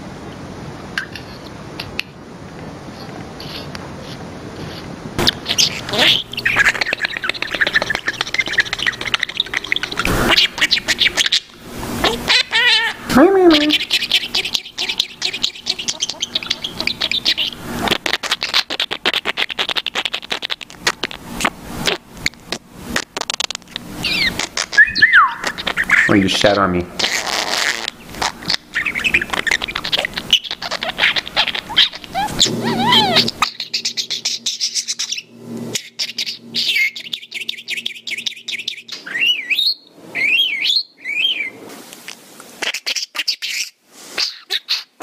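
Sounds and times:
bird beak tapping and scraping: 0:03.0 - 0:11.4
budgerigar looping whistles: 0:05.2 - 0:21.5, 0:24.0 - 0:41.6
budgerigar clicking chatter: 0:05.2 - 0:22.0, 0:23.4 - 0:39.0.

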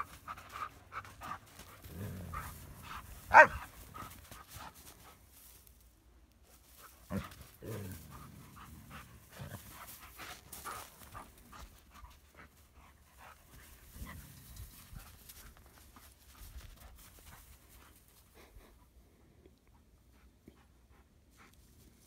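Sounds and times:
puppy panting: 0:00.0 - 0:05.2.

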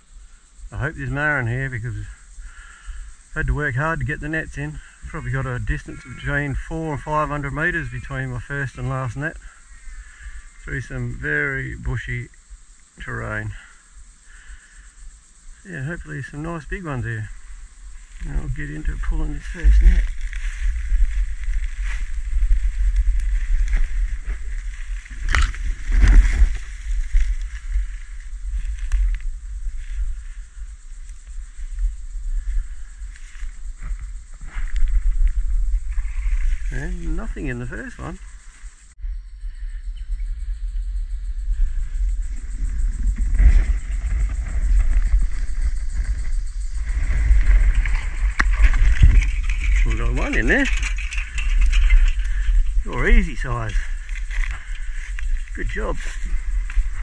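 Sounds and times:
low rumble on microphone: 0:00.0 - 0:57.0
footsteps crunching dry grass: 0:17.3 - 0:30.2, 0:43.1 - 0:57.0
net rustling and knocking: 0:19.7 - 0:27.9.

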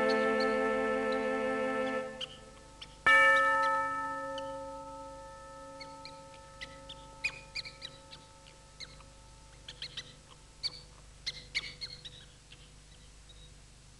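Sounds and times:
high squeaks and chirps: 0:00.0 - 0:03.0, 0:05.8 - 0:13.6
bell-like tone ringing: 0:03.1 - 0:09.6.

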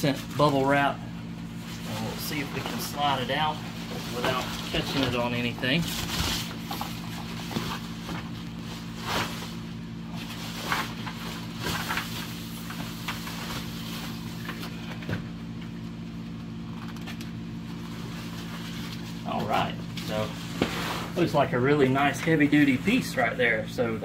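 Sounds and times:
steady low hum: 0:00.0 - 0:24.0
packaging rustling and scraping: 0:01.6 - 0:14.7.

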